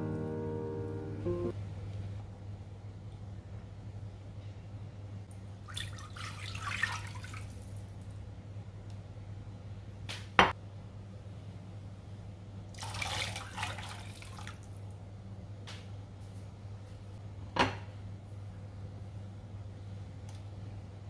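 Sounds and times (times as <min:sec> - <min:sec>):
water pouring into a pot: 0:05.7 - 0:07.9, 0:12.8 - 0:14.8.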